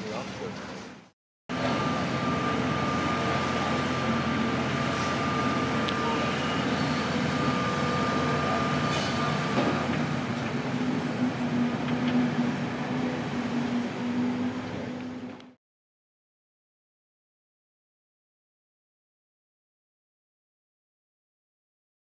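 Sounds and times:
excavator engine and hydraulics hum: 0.0s - 15.6s.

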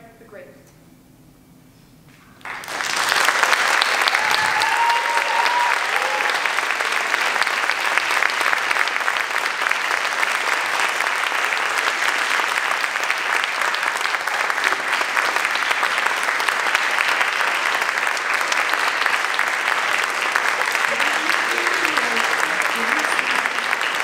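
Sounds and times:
audience applauding: 2.4s - 24.0s.

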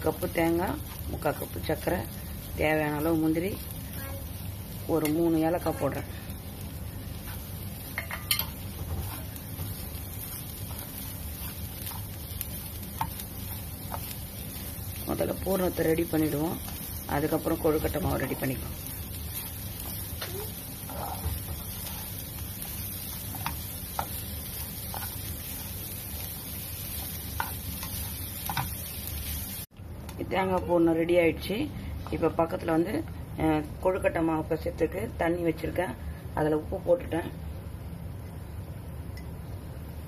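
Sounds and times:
spatula scraping frying pan: 7.2s - 14.4s, 19.2s - 25.9s.

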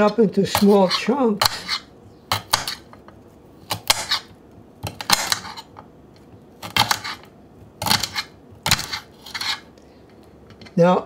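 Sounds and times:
knife crunching through stems: 6.6s - 9.7s.

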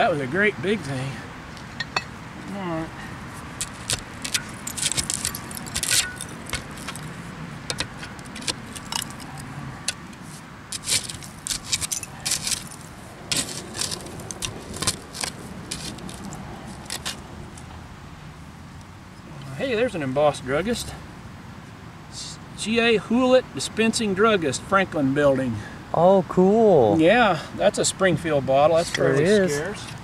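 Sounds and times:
glass clinking and scraping: 1.8s - 2.2s, 3.6s - 17.2s.

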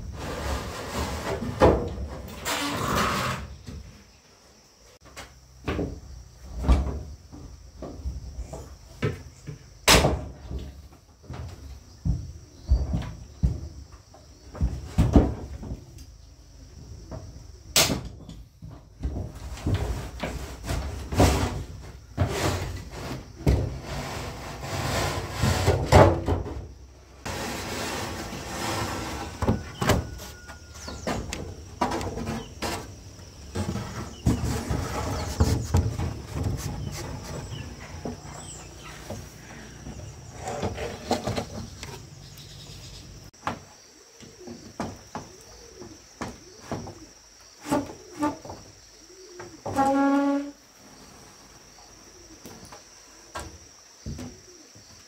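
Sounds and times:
hard objects knocking and scraping: 27.3s - 42.1s.

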